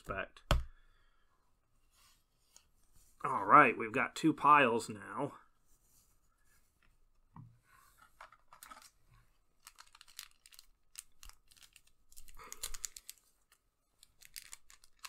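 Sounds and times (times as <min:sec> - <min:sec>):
foil wrapper crinkling: 0:08.5 - 0:09.0, 0:09.6 - 0:15.0
foil wrapper tearing: 0:09.6 - 0:15.0.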